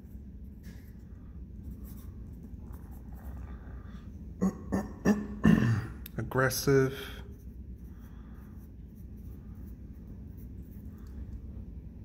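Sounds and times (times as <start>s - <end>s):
pencil scratching on paper: 1.6s - 3.4s, 7.3s - 10.9s.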